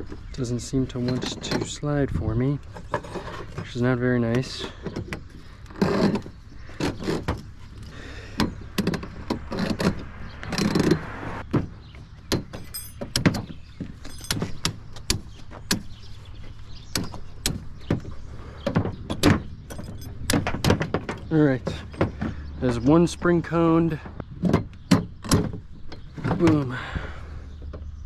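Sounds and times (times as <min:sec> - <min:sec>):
metal clicks knocks and scrapes: 0:00.0 - 0:26.7.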